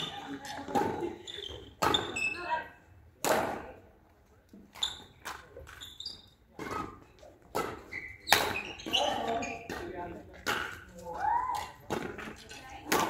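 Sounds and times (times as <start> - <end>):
rackets hitting shuttlecock: 0.0 - 2.4, 3.2 - 3.8, 6.6 - 13.0.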